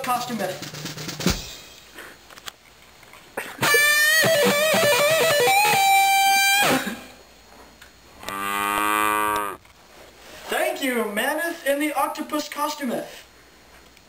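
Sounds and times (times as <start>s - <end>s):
electric guitar riff: 3.6s - 7.1s.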